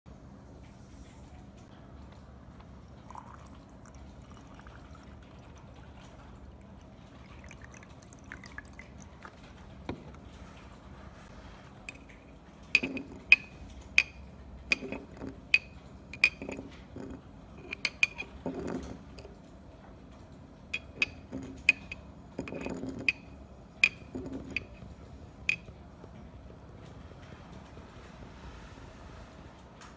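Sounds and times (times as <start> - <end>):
spoon clinking against glass: 12.8 - 19.3, 20.8 - 24.8, 25.5 - 25.7.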